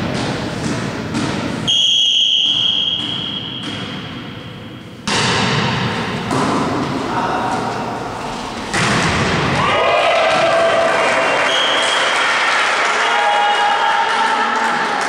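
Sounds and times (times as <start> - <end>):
gym hall noise: 0.0 - 15.0
referee's whistle: 1.7 - 3.7, 11.5 - 12.1
thuds: 8.7 - 9.6.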